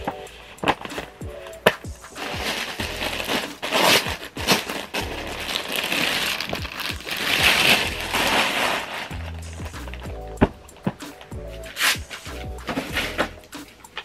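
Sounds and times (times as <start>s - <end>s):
plastic packaging crinkling: 0.6s - 10.0s.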